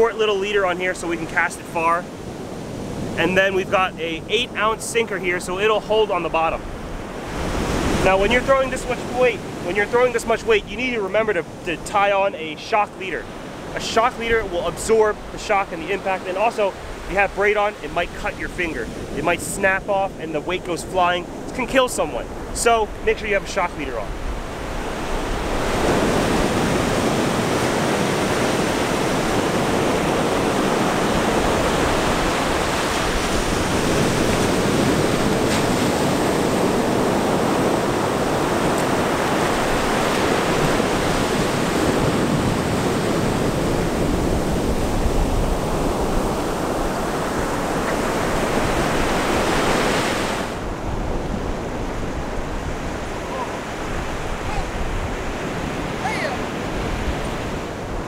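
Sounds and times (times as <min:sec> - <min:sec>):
ocean surf breaking: 0:00.0 - 0:58.0
wind buffeting microphone: 0:23.9 - 0:58.0.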